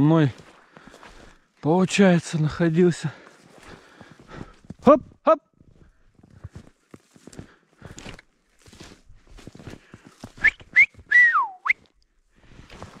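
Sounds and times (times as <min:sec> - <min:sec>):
footsteps crunching through snow: 0:00.0 - 0:11.1, 0:11.8 - 0:13.0
person whistling: 0:10.4 - 0:11.9.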